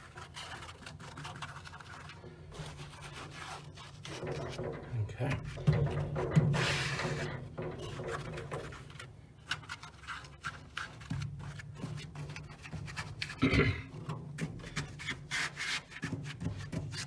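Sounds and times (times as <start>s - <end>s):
bump on metal cabinet: 4.3s - 8.7s
hands brushing carpet: 14.6s - 17.0s.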